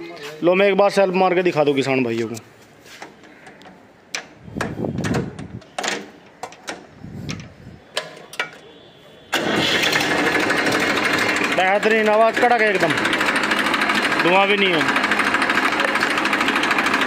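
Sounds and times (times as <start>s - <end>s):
starter clicks and bursts: 9.3s - 17.0s
diesel engine idling: 9.4s - 17.0s.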